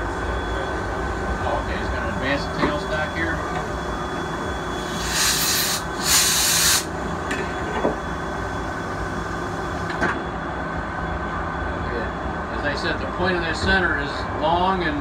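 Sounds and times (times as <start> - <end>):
short bursts of hiss: 4.9 - 6.9.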